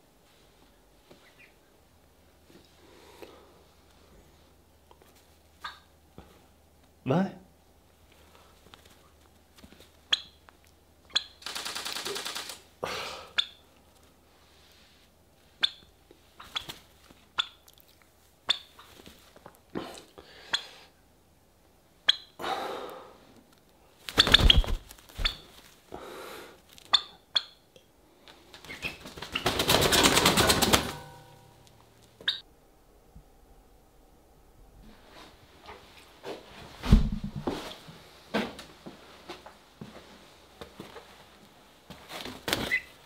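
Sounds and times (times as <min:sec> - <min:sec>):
turkey flapping wings: 0:11.4 - 0:12.7, 0:24.0 - 0:25.5, 0:28.6 - 0:31.3.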